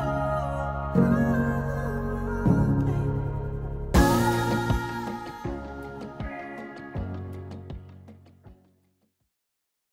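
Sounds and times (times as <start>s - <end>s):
music with sustained notes: 0.0s - 8.8s
soft low beat: 2.5s - 7.9s.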